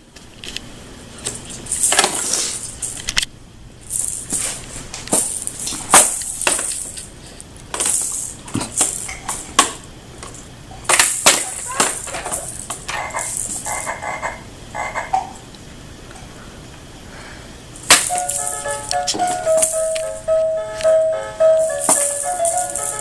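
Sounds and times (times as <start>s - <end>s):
baby rattle beads rattling: 1.6s - 3.2s, 3.8s - 9.6s, 10.8s - 14.2s, 17.8s - 20.3s, 21.6s - 23.0s.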